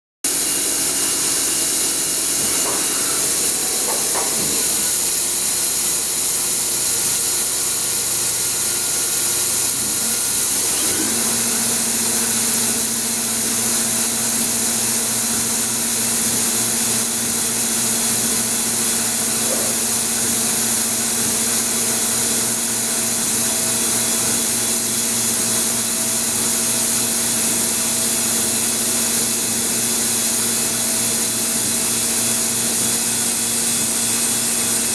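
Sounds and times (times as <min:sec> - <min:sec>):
lathe running with hiss: 0:00.3 - 0:34.9
machine hums: 0:00.3 - 0:34.9.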